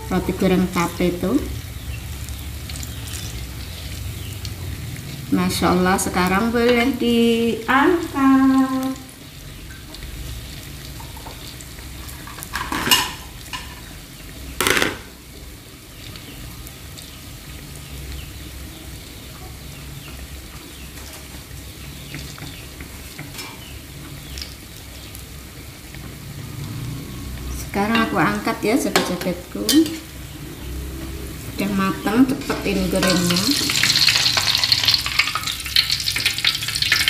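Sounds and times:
dough deep-frying in oil: 0.0 - 37.0.

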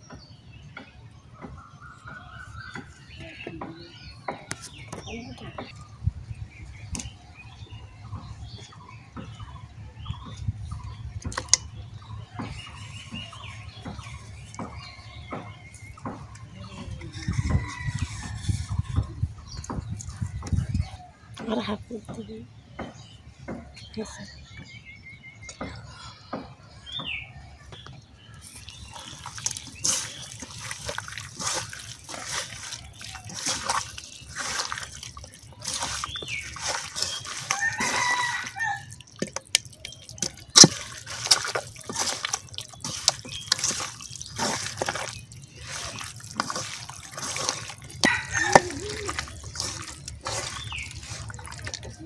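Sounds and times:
wet squelching of kneaded meat: 4.0 - 21.7, 28.0 - 52.0.

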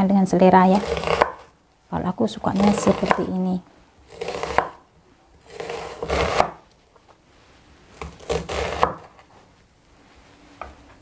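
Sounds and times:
knife slicing through onion: 0.7 - 1.5, 2.5 - 3.4, 4.1 - 4.8, 5.4 - 6.6, 7.9 - 9.2.

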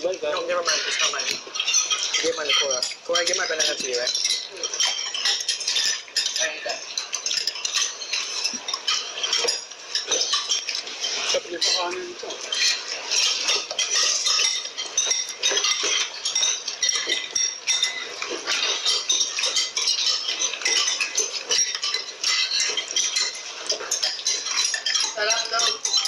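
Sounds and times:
cutlery clinking on plates: 0.1 - 26.0.

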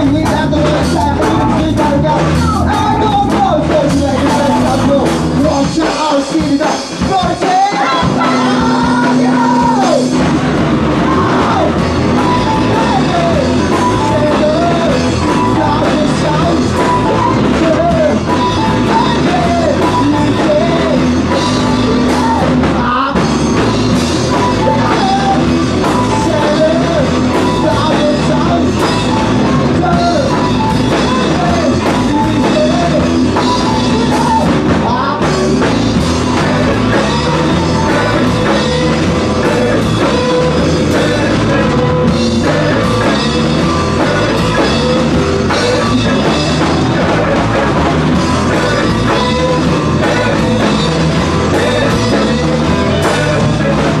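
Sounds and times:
drums: 0.0 - 54.0
electric guitar: 0.0 - 54.0
person singing: 0.0 - 54.0
rock band playing live: 0.0 - 54.0.

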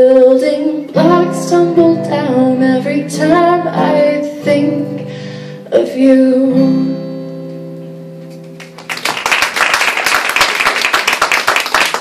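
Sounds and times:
audience clapping: 8.5 - 12.0.

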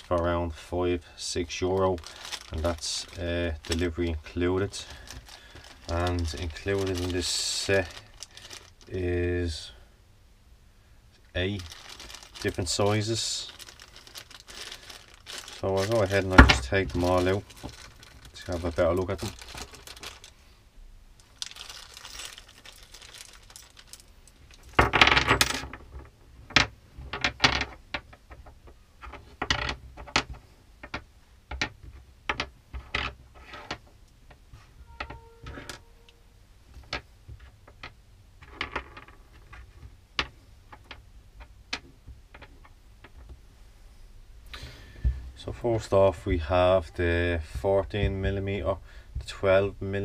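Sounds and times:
plastic bag rustling: 0.0 - 0.4, 1.2 - 9.7, 11.4 - 20.5, 21.2 - 25.0.

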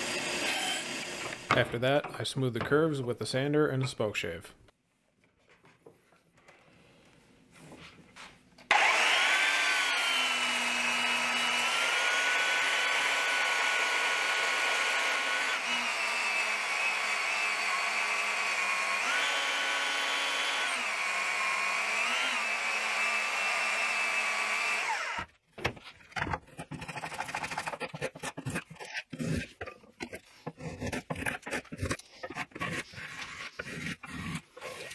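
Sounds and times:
belt sander whining: 8.7 - 25.3
spokeshave scraping wood: 25.8 - 34.9.

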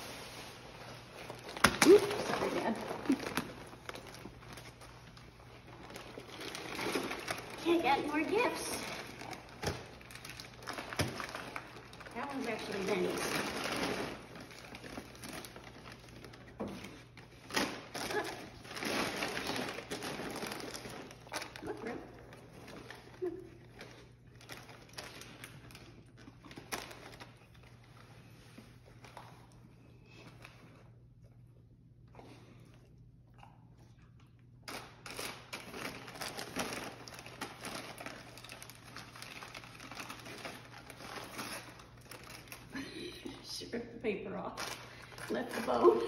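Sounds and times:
wrapping paper tearing: 0.0 - 27.8, 34.7 - 42.9.

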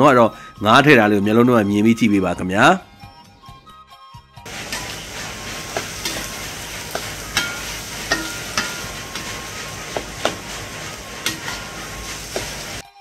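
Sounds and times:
frying sizzle: 4.5 - 13.0
metal spatula scraping and knocking wok: 4.5 - 13.0.

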